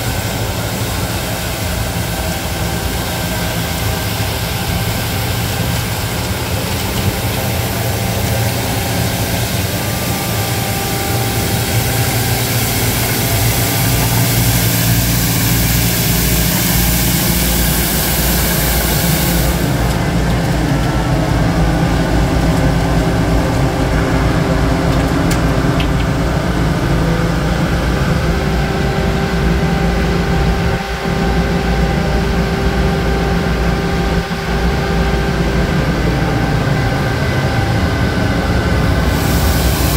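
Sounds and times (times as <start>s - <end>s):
loud high hiss: 0.0s - 20.5s, 30.2s - 39.9s
diesel engine running: 0.0s - 39.9s.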